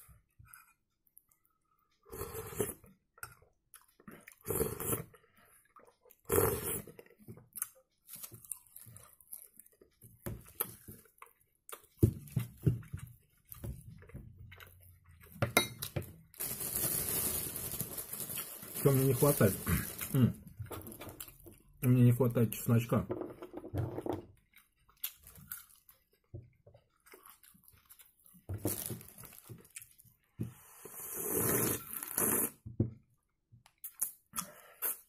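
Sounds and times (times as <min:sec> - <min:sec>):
chewing: 0:00.5 - 0:15.4, 0:24.3 - 0:30.2
slurping: 0:04.2 - 0:05.1, 0:30.6 - 0:32.6
spoon clinking against glass bowl: 0:15.4 - 0:16.0.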